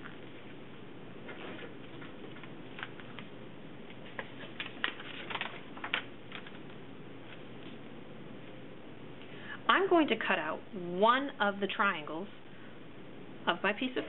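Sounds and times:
paper crinkling: 1.2s - 3.3s, 3.9s - 7.8s.

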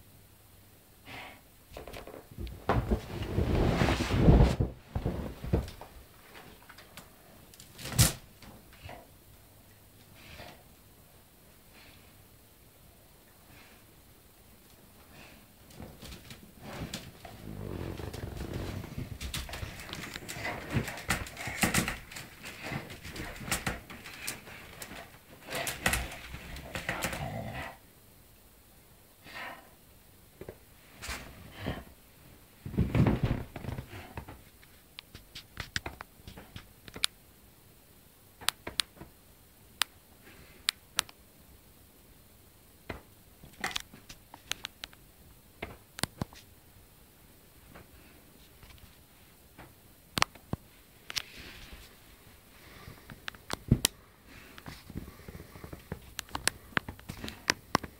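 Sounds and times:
dog rustling in wicker basket: 2.5s - 6.6s.

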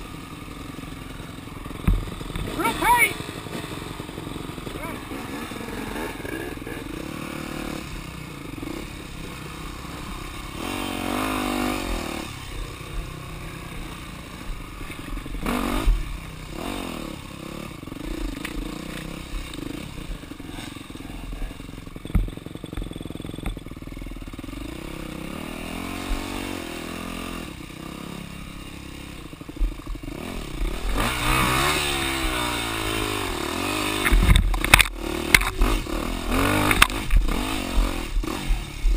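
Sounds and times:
dirt bike engine revving: 0.0s - 38.9s
bike knocks and rattles: 1.7s - 2.6s, 22.0s - 23.8s, 34.0s - 35.8s.

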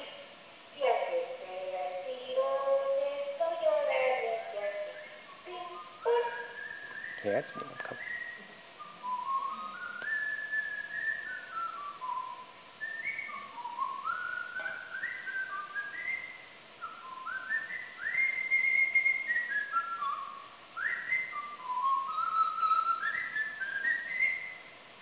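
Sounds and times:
person whistling slow melody: 5.7s - 24.6s.

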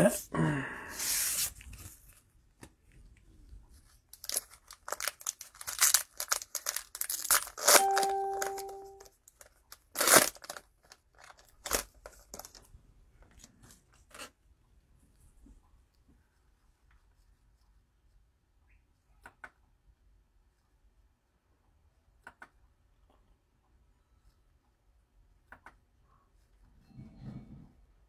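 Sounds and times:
cellophane wrapper crinkling: 3.8s - 12.7s
short beep tone: 7.8s - 9.0s.

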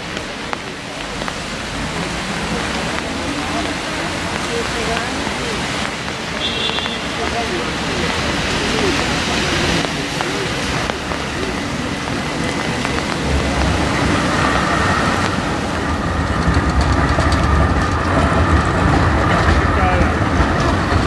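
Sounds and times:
rain hissing: 0.0s - 21.0s
rapid clicking of wheels: 0.0s - 21.0s
tram high whine: 0.0s - 21.0s
tram rumbling on rails: 0.0s - 21.0s.

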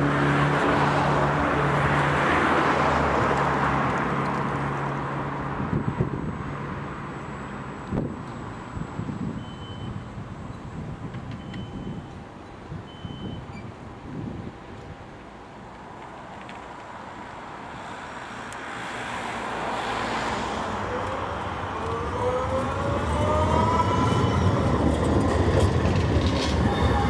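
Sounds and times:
tram rolling on rails: 0.0s - 27.0s
rising whine: 19.8s - 27.0s.

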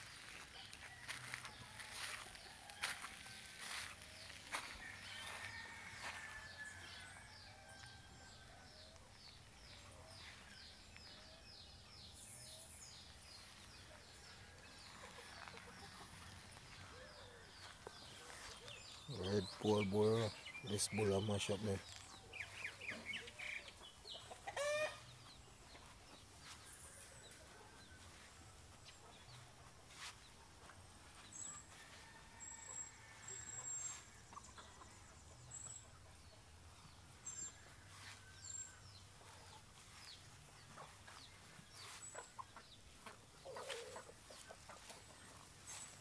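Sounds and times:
loud rooster or hen call: 1.0s - 8.9s, 24.5s - 25.0s
chickens clucking: 13.0s - 31.8s, 32.9s - 46.0s.

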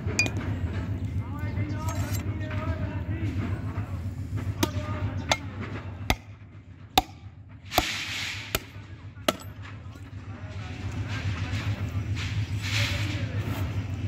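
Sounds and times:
cleaver chopping: 4.6s - 6.4s, 7.0s - 9.6s.

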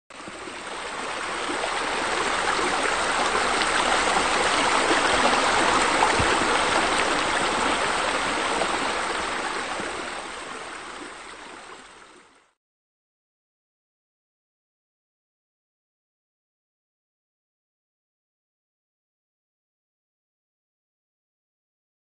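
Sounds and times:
running splashing water: 0.1s - 12.2s.

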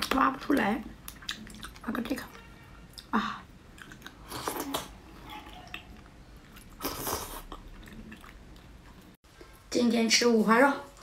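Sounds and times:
wet eating sounds: 0.0s - 2.2s, 2.9s - 9.2s.

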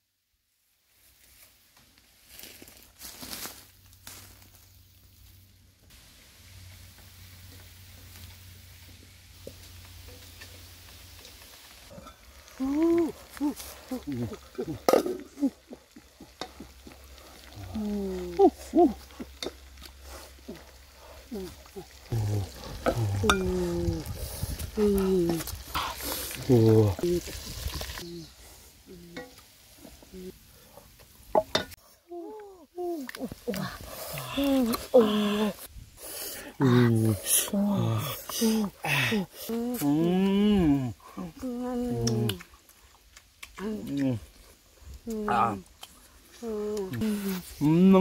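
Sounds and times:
footsteps in dry leaf litter: 0.9s - 5.6s, 21.3s - 28.8s.

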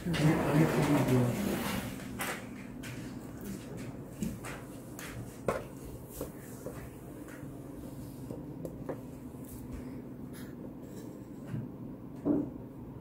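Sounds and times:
steady low hum: 0.0s - 13.0s
objects knocking on a countertop: 12.2s - 12.6s.

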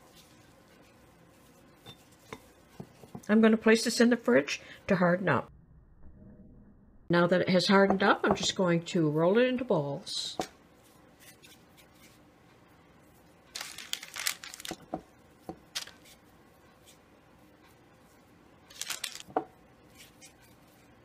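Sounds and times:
parchment paper crinkling: 13.5s - 15.0s, 15.7s - 16.2s, 18.7s - 20.9s.

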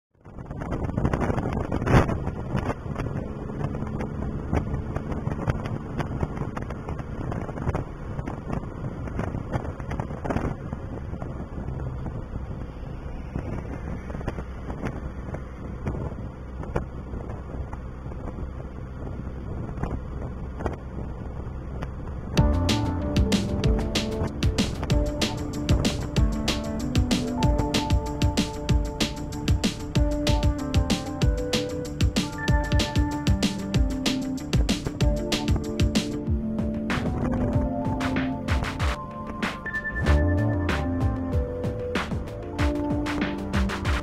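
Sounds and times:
road rumble: 0.1s - 44.0s
vehicle engine running: 0.2s - 44.0s
wind buffeting microphone: 0.2s - 44.0s.

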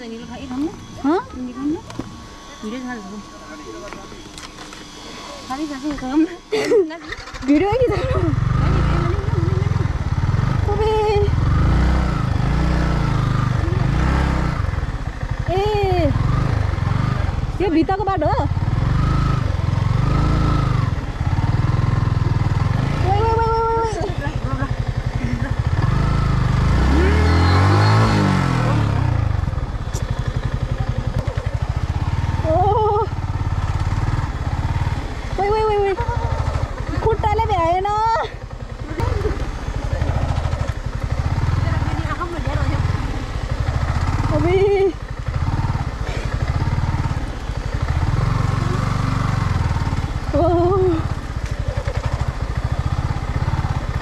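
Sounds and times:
louder engine note shifting pitch: 0.0s - 17.6s, 25.7s - 30.7s
motorcycle engine running: 0.0s - 54.0s.

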